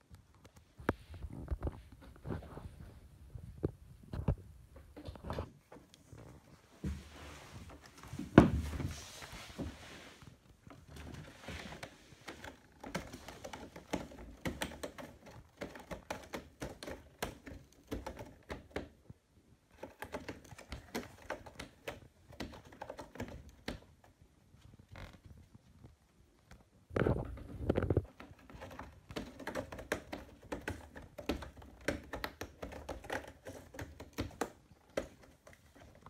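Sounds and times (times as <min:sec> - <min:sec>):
cat claws scratching cardboard: 0:10.7 - 0:19.0, 0:19.7 - 0:24.0, 0:28.0 - 0:36.0.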